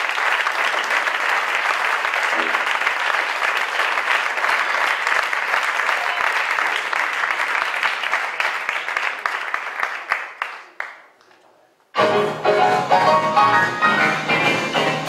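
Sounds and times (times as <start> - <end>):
audience applauding: 0.0 - 11.4.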